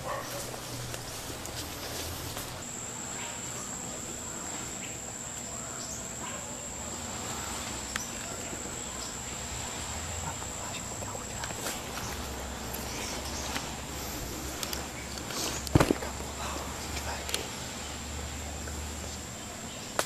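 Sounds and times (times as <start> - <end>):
faint rustling: 0.0 - 2.7, 10.3 - 17.5
insect high-pitched trill: 0.0 - 20.0.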